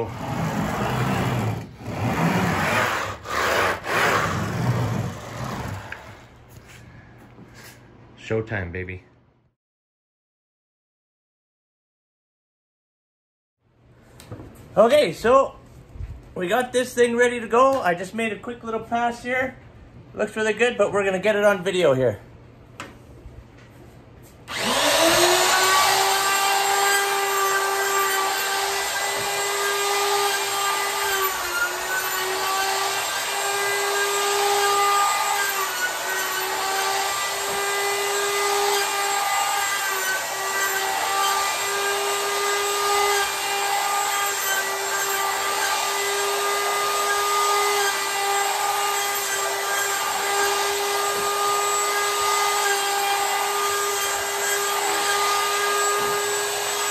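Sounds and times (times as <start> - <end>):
router high whine: 24.5 - 56.9.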